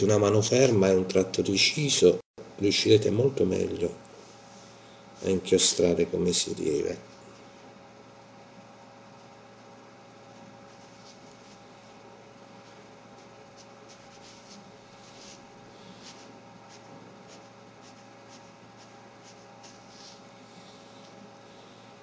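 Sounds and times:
faint electrical hum: 0:00.0 - 0:22.0
brush pen strokes on paper: 0:10.7 - 0:11.9, 0:12.6 - 0:21.8.

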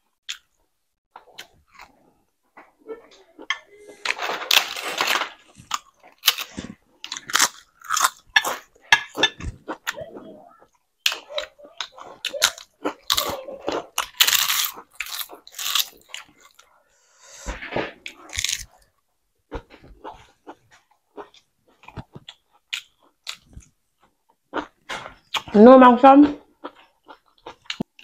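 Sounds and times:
chewing crisp papad: 0:03.8 - 0:16.7, 0:18.0 - 0:18.9, 0:19.5 - 0:25.6.

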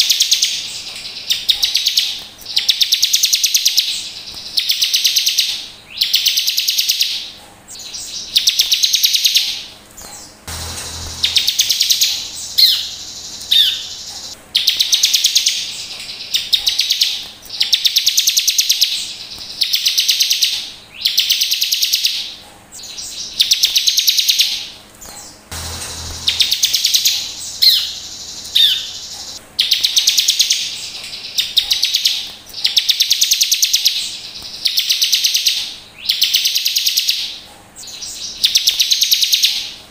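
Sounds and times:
sharp falling bird notes: 0:10.4 - 0:14.3, 0:25.4 - 0:29.4
bird buzzy high trills: 0:10.4 - 0:15.6, 0:25.5 - 0:30.1.

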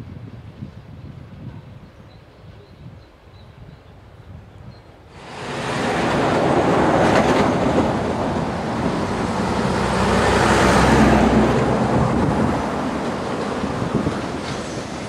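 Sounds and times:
electric freight train approaching: 0:05.1 - 0:15.0
truck and cars passing: 0:05.2 - 0:14.4.

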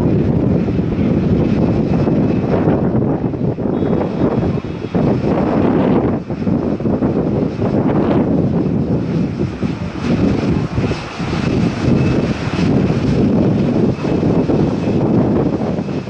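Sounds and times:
jet engines rumbling: 0:00.0 - 0:16.0
faint high whine: 0:03.6 - 0:06.2.

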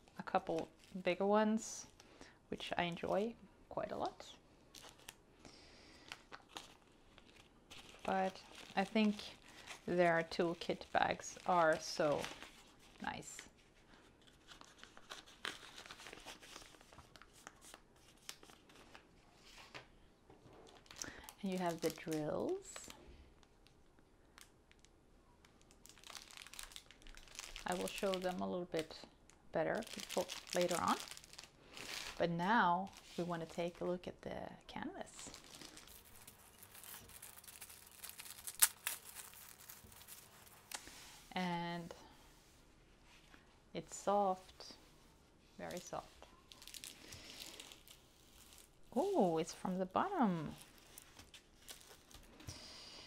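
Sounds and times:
plastic bag crinkling: 0:05.9 - 0:13.5, 0:20.6 - 0:23.0, 0:25.6 - 0:33.9, 0:35.1 - 0:40.9, 0:45.6 - 0:52.5
plastic sleeve rustling: 0:05.9 - 0:19.9, 0:20.5 - 0:23.7, 0:24.4 - 0:29.0, 0:29.6 - 0:33.9, 0:35.1 - 0:41.4, 0:44.4 - 0:52.6
sharp plastic crackle: 0:20.6 - 0:32.2, 0:35.2 - 0:40.9, 0:45.7 - 0:49.2, 0:50.5 - 0:52.6.

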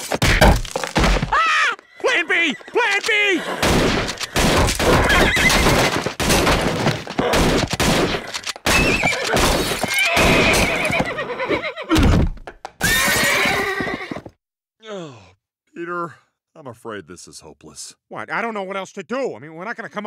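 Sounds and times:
horse whinnying: 0:01.3 - 0:06.1, 0:07.0 - 0:12.1, 0:12.8 - 0:14.4
shotgun blasts: 0:03.6 - 0:10.5
loud crashing and banging: 0:03.6 - 0:10.7.

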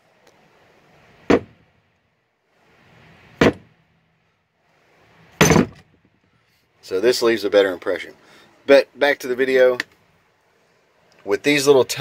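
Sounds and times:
sharp knocks: 0:01.3 - 0:01.6, 0:03.4 - 0:03.8, 0:05.4 - 0:06.2
faint rustle: 0:04.1 - 0:06.9.

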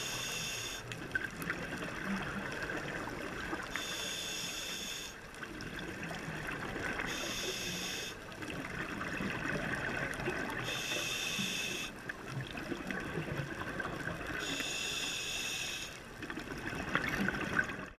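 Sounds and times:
regulator hissing inhales: 0:00.0 - 0:00.8, 0:03.8 - 0:05.2, 0:07.1 - 0:08.2, 0:10.6 - 0:11.9, 0:14.4 - 0:16.0.

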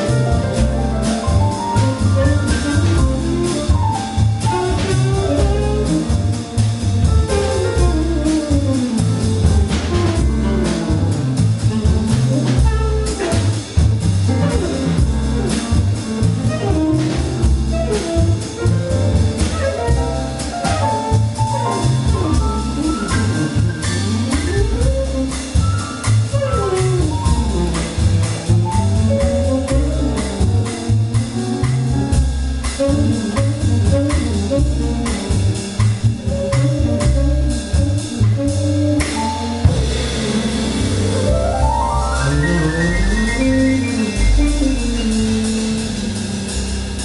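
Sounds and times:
double bass: 0:00.0 - 0:47.0
drum kit with cymbals: 0:00.0 - 0:47.0
piano: 0:00.0 - 0:47.0
tenor saxophone melody: 0:04.4 - 0:06.4.

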